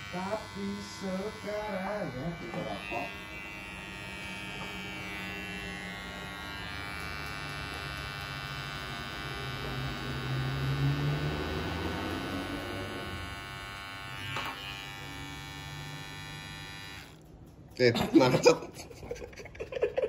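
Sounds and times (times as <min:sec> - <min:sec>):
electric hair trimmer buzzing: 0:00.0 - 0:17.3.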